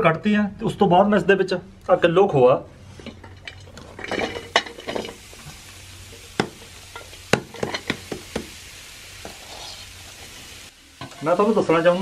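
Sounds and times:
soft sizzle in a pan: 2.9 - 12.0
sharp knocks of metal on pan: 6.4 - 8.5.

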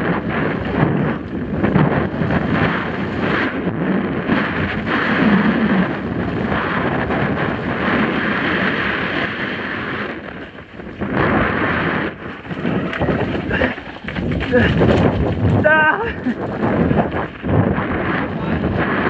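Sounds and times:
wind buffeting microphone: 0.0 - 19.0
tyres rolling on dirt trail: 6.3 - 19.0
bike knocks and rattles: 12.2 - 17.4.

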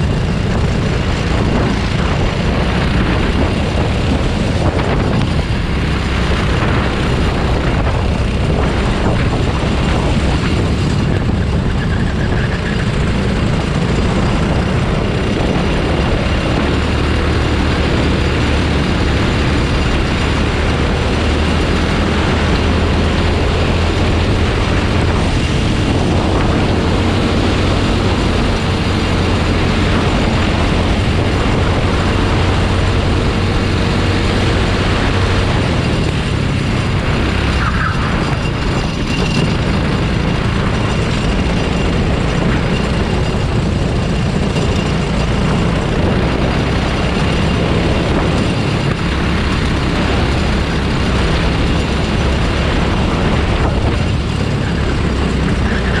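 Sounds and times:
go-kart engine running: 0.0 - 56.0
wind rush: 0.0 - 56.0.

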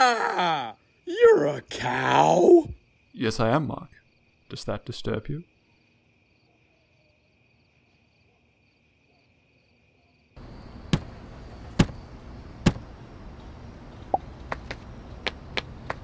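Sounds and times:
faint crickets chirping: 0.0 - 16.0
sharp hopping thuds: 10.8 - 12.0, 12.6 - 12.9, 14.1 - 16.0.

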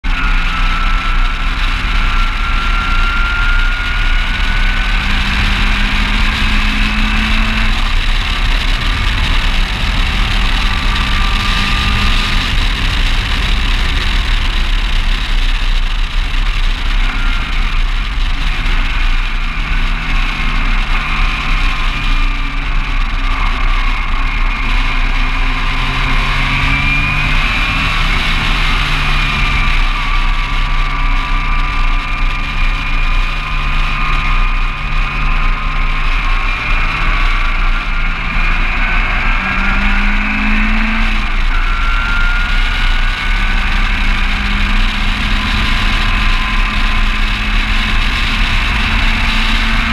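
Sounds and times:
race car engine: 0.0 - 49.9
wind rumble on microphone: 0.0 - 49.9.

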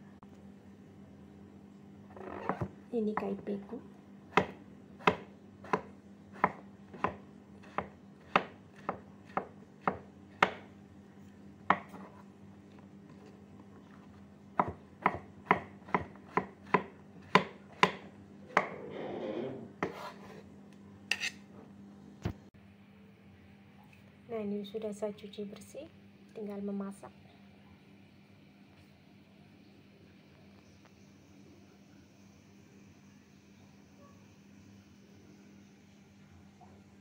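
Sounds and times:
cleaver chopping on wooden board: 4.3 - 10.6, 14.6 - 18.7
scraping on chopping board: 18.6 - 20.5, 21.1 - 21.4.

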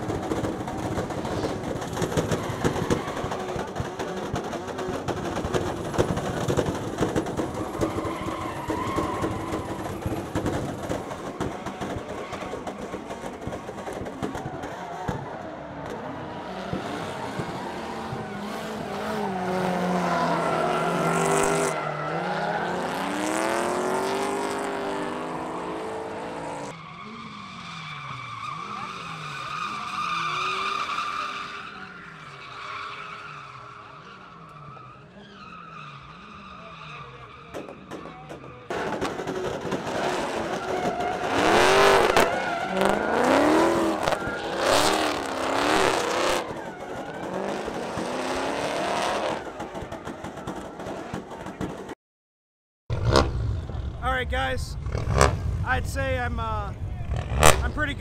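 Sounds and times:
car engines revving: 0.0 - 52.0, 52.9 - 58.0
tyres squealing: 7.5 - 13.4.

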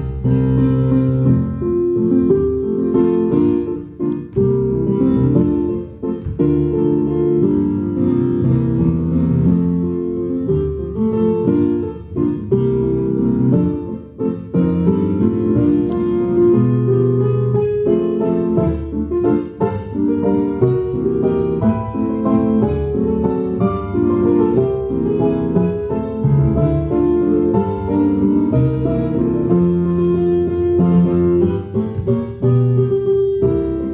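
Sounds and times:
piano music: 0.0 - 33.9.

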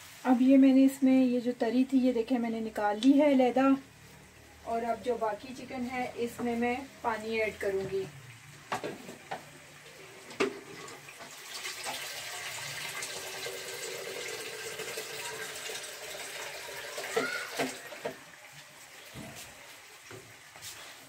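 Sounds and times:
water running from tap: 6.0 - 20.7.

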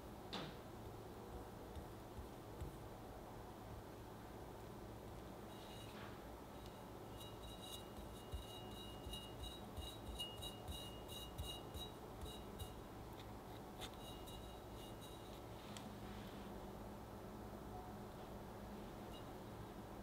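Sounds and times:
cake turntable ringing ticks: 6.6 - 12.8.

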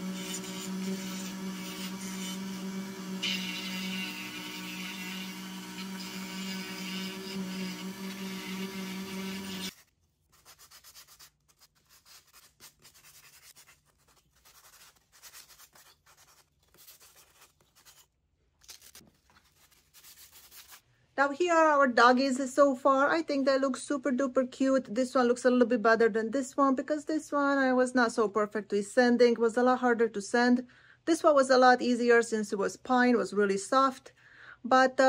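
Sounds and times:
sandpaper rubbing on wood: 0.0 - 2.6
rotary tool whining: 0.0 - 9.7.

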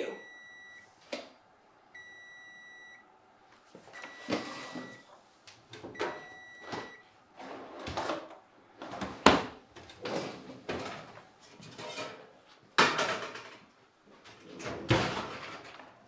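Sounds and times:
smoke alarm beeping: 0.0 - 1.0, 2.0 - 3.1, 3.9 - 5.1, 5.9 - 7.1.

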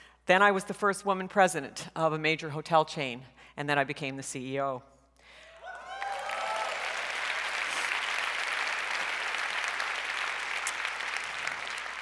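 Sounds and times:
people cheering: 5.5 - 12.0
audience clapping: 5.6 - 12.0.

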